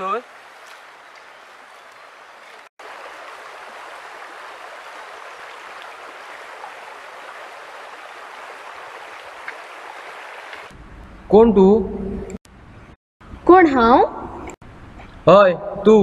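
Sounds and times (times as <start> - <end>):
outdoor background hiss: 0.0 - 11.8.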